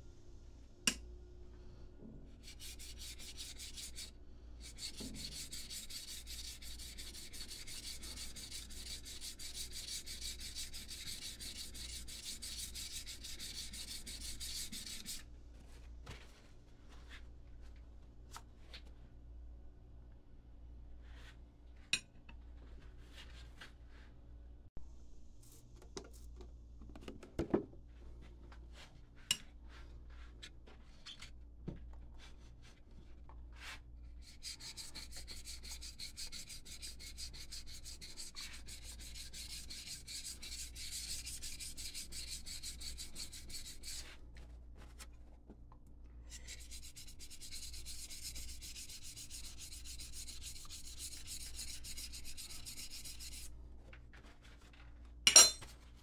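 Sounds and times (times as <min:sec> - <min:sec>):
hand sanding wood: 0:02.4 - 0:15.2, 0:34.2 - 0:44.2, 0:46.4 - 0:53.5.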